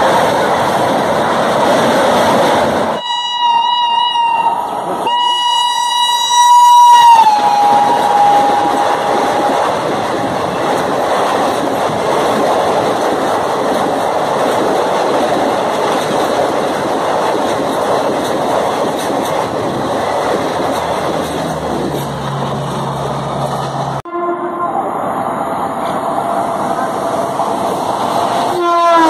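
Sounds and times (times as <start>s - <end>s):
train coaches rushing past: 0.0s - 29.0s
train horn: 3.0s - 9.6s, 24.1s - 24.9s, 28.5s - 29.0s.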